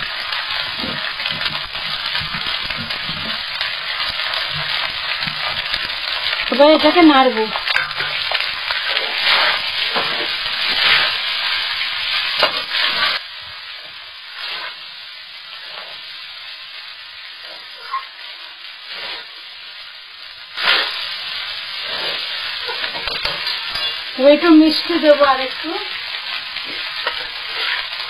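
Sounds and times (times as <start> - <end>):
rice sizzling in a wok: 0.0 - 28.0
metal spatula scraping wok: 0.6 - 13.2, 14.4 - 14.8, 18.8 - 19.4, 20.6 - 25.7, 26.6 - 28.0.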